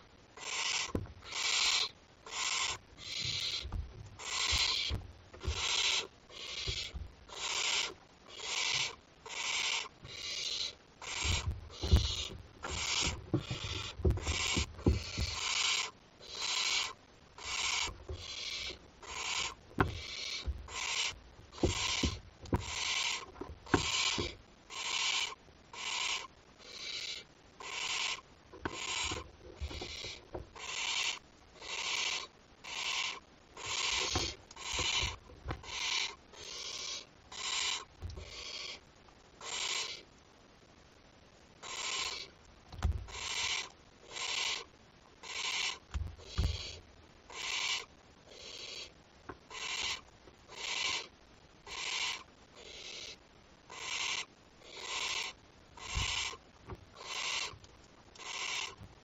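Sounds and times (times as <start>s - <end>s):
owl chick rasping hiss: 0.0s - 40.3s, 41.6s - 42.4s, 43.0s - 58.8s
scuffs and knocks on nest: 11.2s - 15.5s, 21.5s - 24.4s, 34.0s - 35.6s.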